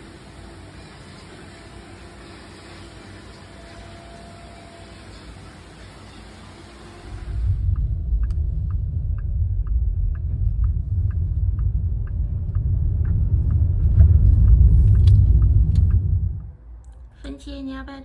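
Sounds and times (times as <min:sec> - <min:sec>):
road rumble inside car: 0:06.9 - 0:17.9
light even ticking: 0:07.6 - 0:17.0.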